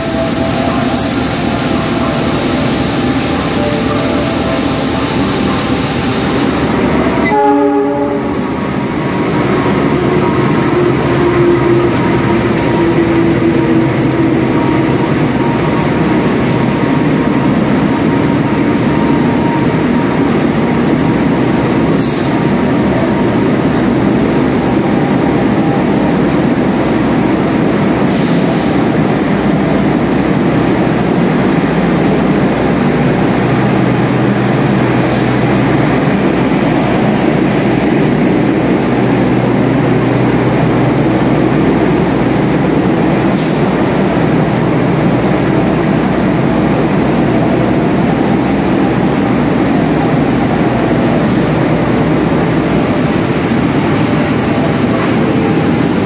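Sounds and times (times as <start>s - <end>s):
train carriages rumbling: 0.0s - 56.0s.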